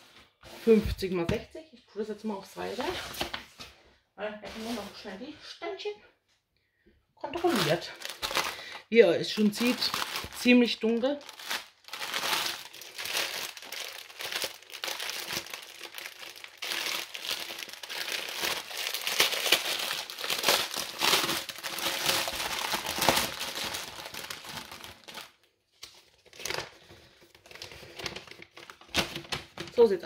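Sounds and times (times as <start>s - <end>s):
plastic wrapping crinkling: 7.3s - 30.0s.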